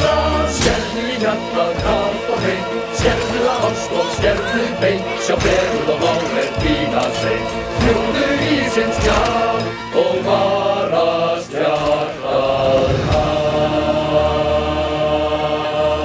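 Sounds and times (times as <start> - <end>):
male chorus singing: 0.0 - 16.0.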